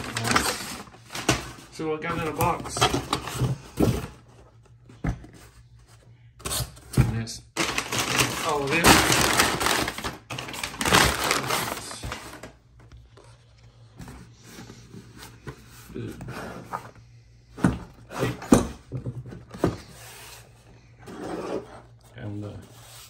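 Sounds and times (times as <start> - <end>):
packing paper rustling: 0.0 - 3.6, 7.5 - 15.0.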